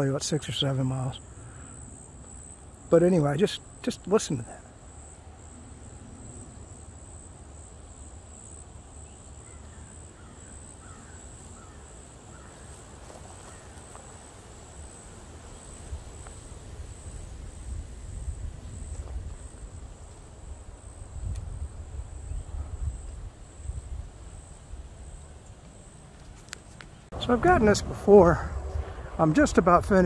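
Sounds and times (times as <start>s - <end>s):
insects trilling: 0.0s - 30.0s
faint bird calls: 9.0s - 14.2s
low rumble: 27.1s - 30.0s.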